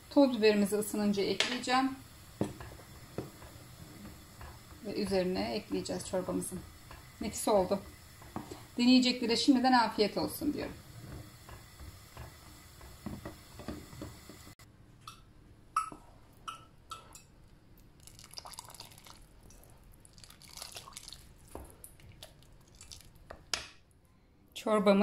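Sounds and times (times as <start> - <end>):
thick soup pouring and dripping: 17.8 - 23.5.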